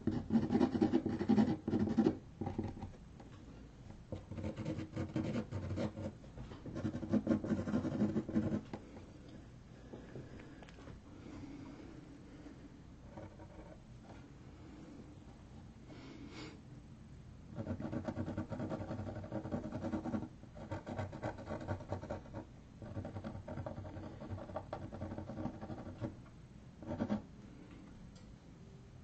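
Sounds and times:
marker scratching on paper: 0:00.0 - 0:02.9, 0:04.1 - 0:08.7, 0:26.8 - 0:27.2.

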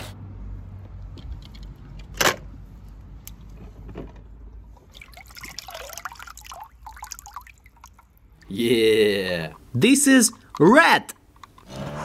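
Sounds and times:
hand splashing in water: 0:04.9 - 0:08.1
water dripping into tub: 0:04.9 - 0:10.6.

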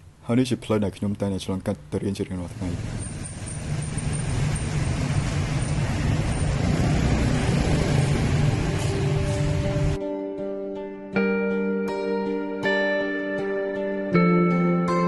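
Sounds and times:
street traffic: 0:02.3 - 0:10.0
motorbike engine rumble: 0:02.5 - 0:10.0
soft music: 0:07.8 - 0:15.0.

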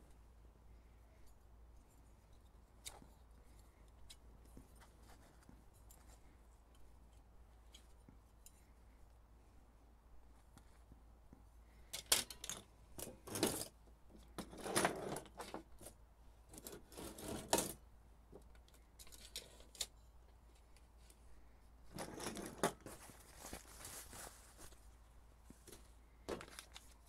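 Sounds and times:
metal parts clicking and clinking: 0:11.9 - 0:13.7.

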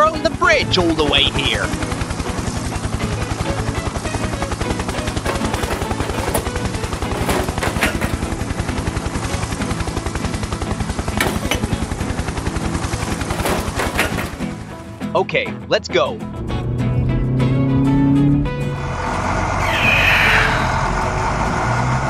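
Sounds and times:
rapid low mechanical thudding: 0:04.9 - 0:15.0.

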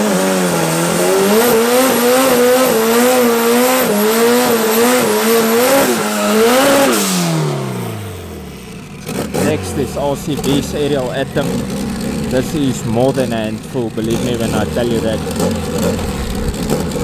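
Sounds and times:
car engine revving: 0:00.0 - 0:17.0
tyres squealing: 0:09.0 - 0:17.0.

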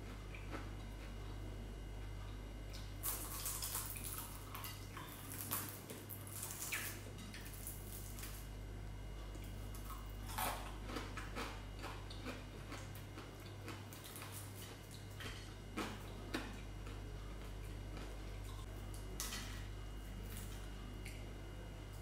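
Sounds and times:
steady low hum: 0:00.0 - 0:22.0
chewing clicks and smacks: 0:09.3 - 0:19.1.

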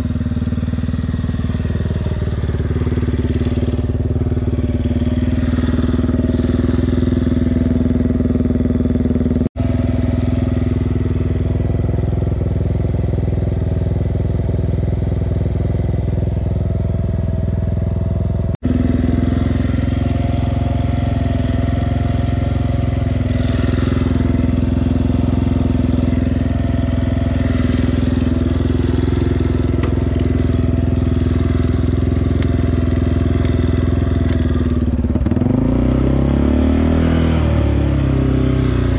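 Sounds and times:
quad engine running: 0:00.0 - 0:38.9.

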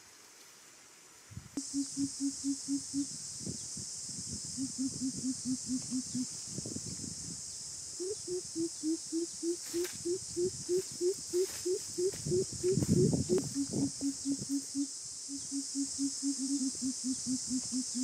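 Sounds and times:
insect drone: 0:00.0 - 0:18.0
coucal hooting: 0:01.6 - 0:03.2, 0:04.5 - 0:06.3, 0:08.0 - 0:18.0.

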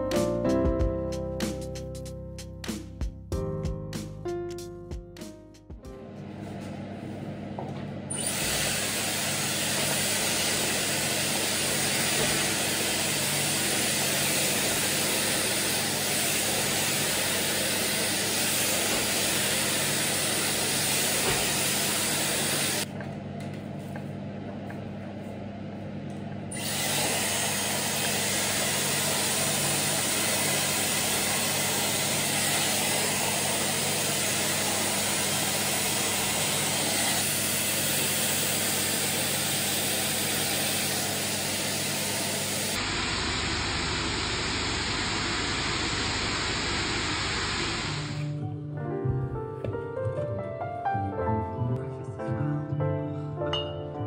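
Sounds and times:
hair styler blowing air: 0:08.1 - 0:22.9, 0:26.5 - 0:48.3
low motor hum: 0:42.8 - 0:48.7.

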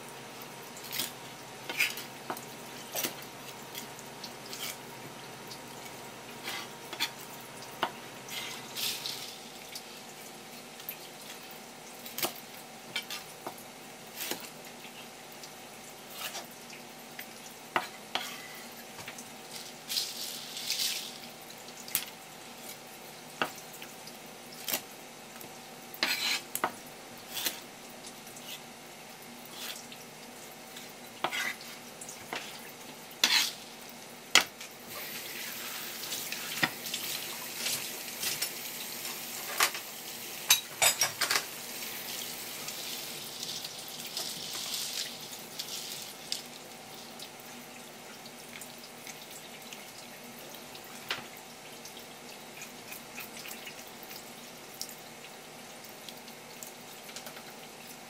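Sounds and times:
knife and utensils on cutting board: 0:26.0 - 0:26.5, 0:31.2 - 0:32.6, 0:33.2 - 0:33.6
running water: 0:34.8 - 0:58.0.

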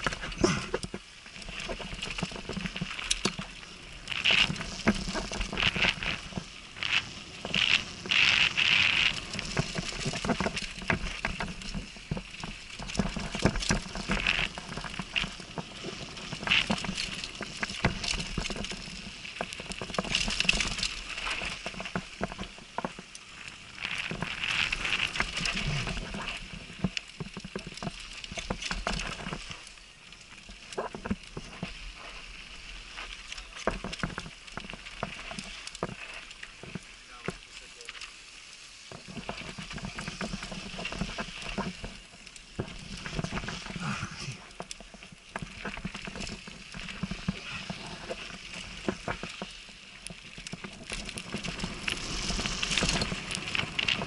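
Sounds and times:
bike rattling over bumps: 0:00.0 - 0:54.0
bike tyres crunching over gravel: 0:00.0 - 0:54.0.

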